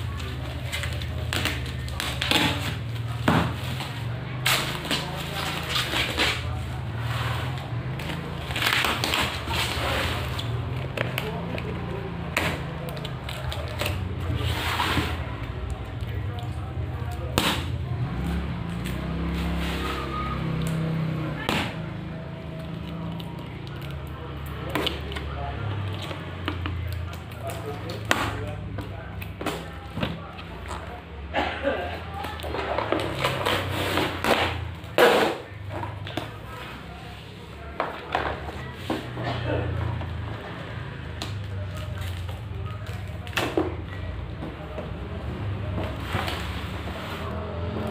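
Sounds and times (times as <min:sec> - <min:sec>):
cardboard and plastic rustling: 0:00.0 - 0:18.0, 0:32.1 - 0:40.5.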